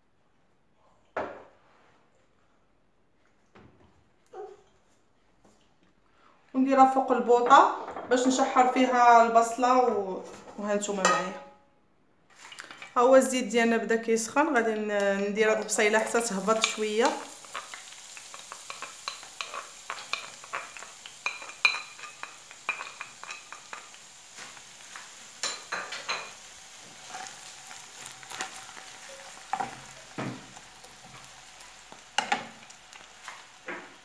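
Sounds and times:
onion sizzling in oil: 14.4s - 34.0s
wooden spatula scraping and tapping pan: 15.6s - 31.3s, 32.2s - 34.0s.

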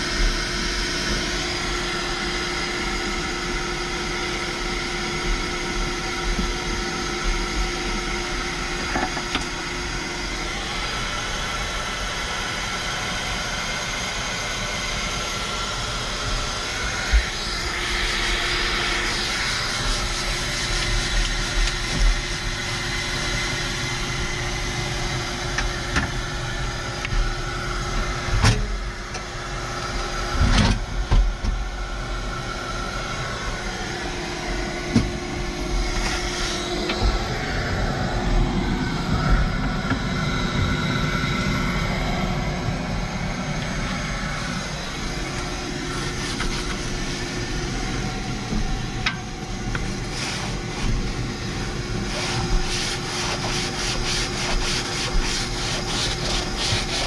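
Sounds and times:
knocks and rustles from cleaning: 19.0s - 22.4s, 46.0s - 47.2s, 52.0s - 57.0s.

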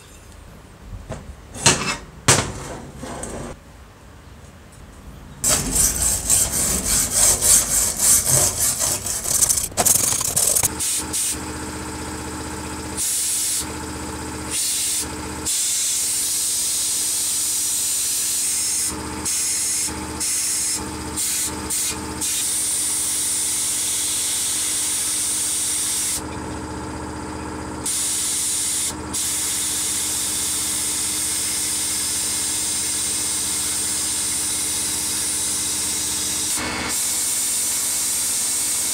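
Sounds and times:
machine hum: 5.4s - 13.0s, 26.2s - 29.2s
rapid scrubbing strokes: 5.5s - 10.7s.

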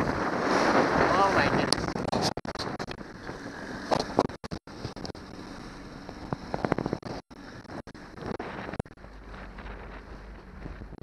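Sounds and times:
boat through choppy water: 0.0s - 11.0s
outboard motor running: 0.0s - 11.0s
wind buffeting microphone: 0.0s - 11.0s.

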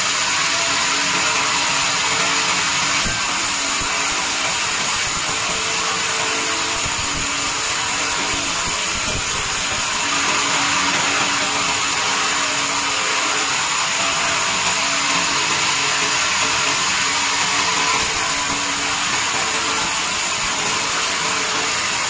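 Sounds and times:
band saw cutting wood: 0.0s - 22.0s.

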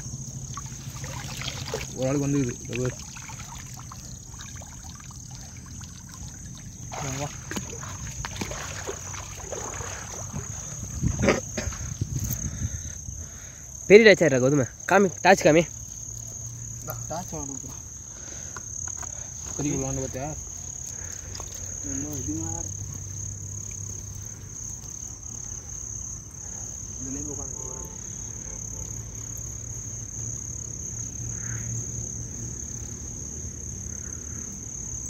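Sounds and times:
low steady hum: 0.0s - 12.2s
night insects trilling: 0.0s - 35.0s.

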